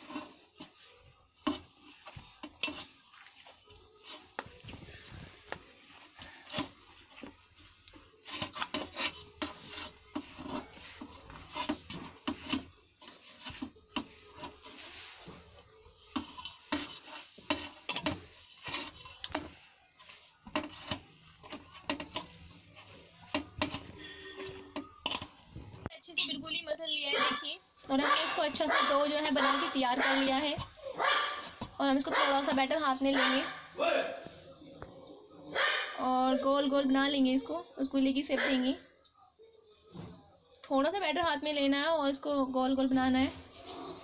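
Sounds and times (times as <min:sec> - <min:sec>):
hand kneading dough: 0:00.0 - 0:25.9.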